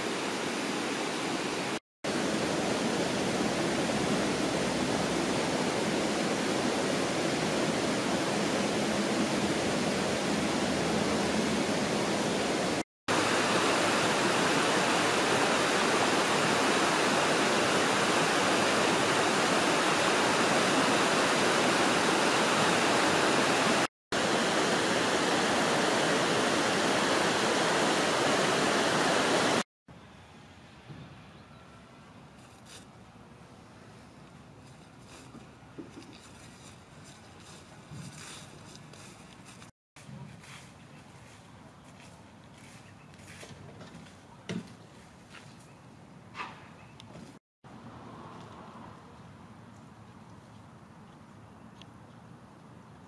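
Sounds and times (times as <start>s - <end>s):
river rushing over rapids: 0.0s - 29.6s.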